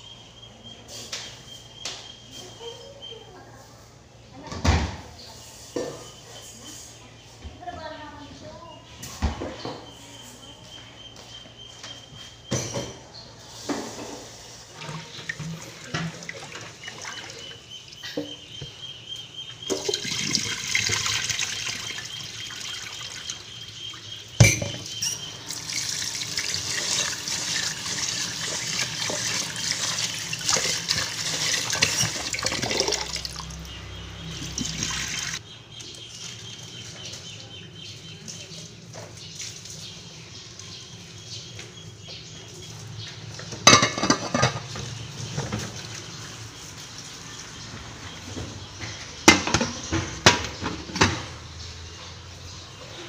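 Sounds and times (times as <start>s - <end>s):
tap water running into metal pot: 14.8s - 17.6s, 19.7s - 23.4s, 25.5s - 33.5s, 34.5s - 35.4s.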